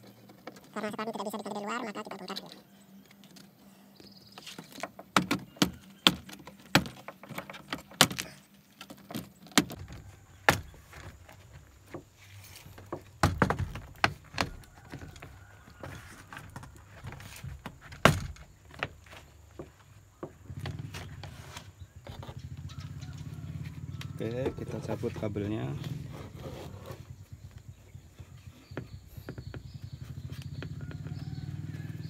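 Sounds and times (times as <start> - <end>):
plastic panel rattling: 4.4 - 22.4.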